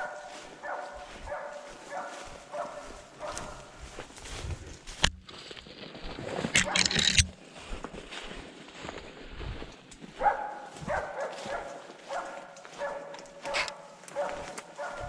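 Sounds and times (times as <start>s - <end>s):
dog barking: 0.0s - 3.8s, 10.2s - 15.0s.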